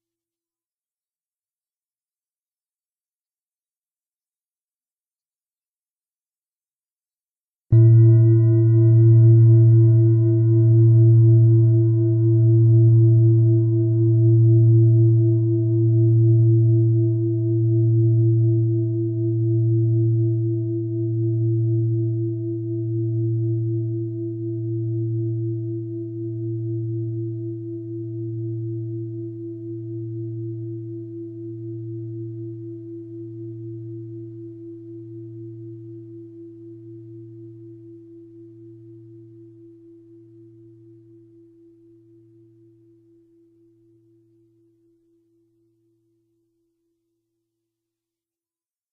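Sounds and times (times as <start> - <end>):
bell ringing low tone: 7.7 - 12.9.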